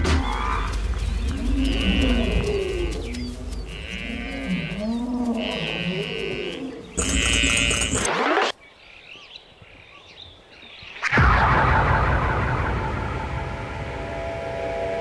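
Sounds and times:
buffalo low bleating calls: 0.4s - 8.1s
sudden loud sound: 11.1s - 15.0s.

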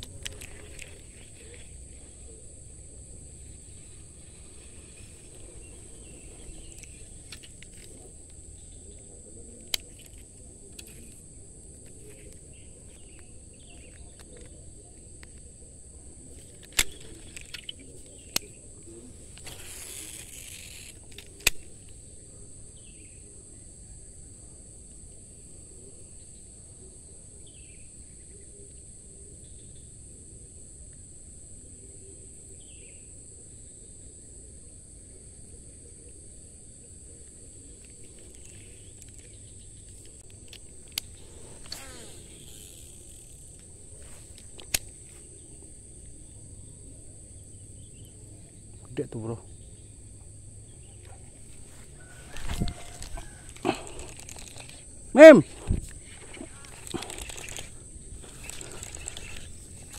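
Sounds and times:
insect chorus: 0.0s - 59.9s
sharp clicks: 16.4s - 18.6s, 37.8s - 45.4s, 52.0s - 59.9s
rustling rush: 51.3s - 59.9s.

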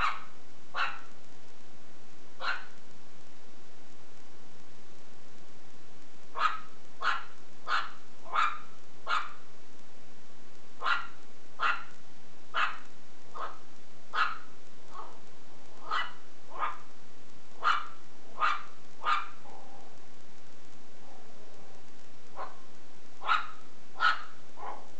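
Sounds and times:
puppy barking in high yaps: 0.0s - 1.1s, 2.4s - 2.8s, 6.3s - 9.4s, 10.8s - 15.2s, 15.8s - 16.9s, 17.6s - 20.0s, 22.3s - 24.9s.

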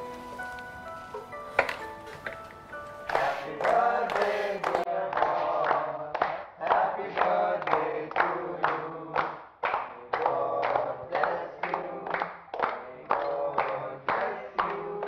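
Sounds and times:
group singing in chorus: 3.0s - 15.0s
hand-clapping: 3.1s - 15.0s.

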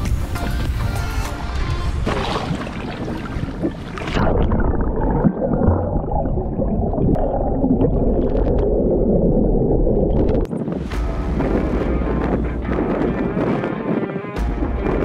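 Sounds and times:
water splashing: 1.8s - 14.0s
muffled underwater bubbling: 2.0s - 10.6s.

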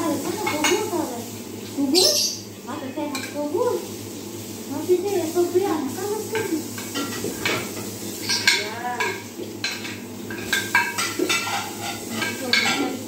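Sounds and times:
light frying sizzle: 0.0s - 13.0s
utensil clinking against pan: 6.4s - 13.0s.

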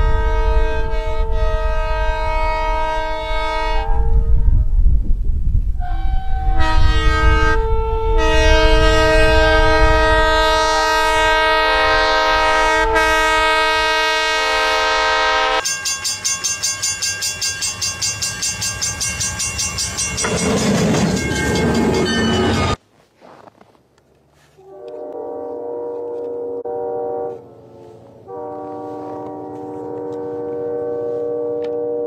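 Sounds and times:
locomotive air horn: 0.0s - 4.6s, 5.8s - 15.8s, 24.5s - 32.0s
train rumbling through snow: 0.0s - 23.6s, 24.3s - 32.0s
rhythmic beat of train running: 6.4s - 22.8s, 24.8s - 32.0s.

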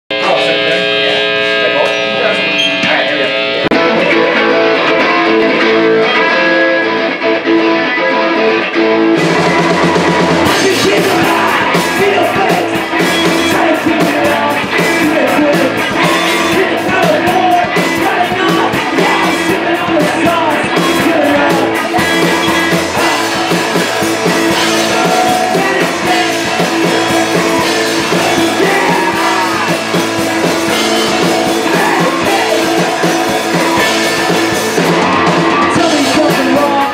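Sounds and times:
distorted electric guitars: 0.0s - 36.9s
bass guitar: 0.1s - 36.9s
drum kit crashing: 9.2s - 36.9s
person shouting singing: 10.4s - 36.9s.

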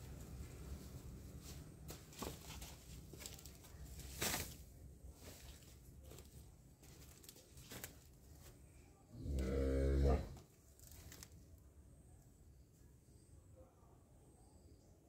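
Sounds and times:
footsteps through undergrowth: 0.1s - 8.6s
leafy vegetation rustling: 0.3s - 8.6s, 10.6s - 11.4s.

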